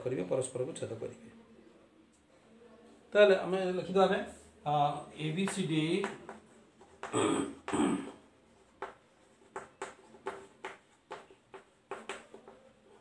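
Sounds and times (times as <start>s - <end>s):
chalk tapping and scraping on blackboard: 5.3s - 7.8s, 8.5s - 13.0s.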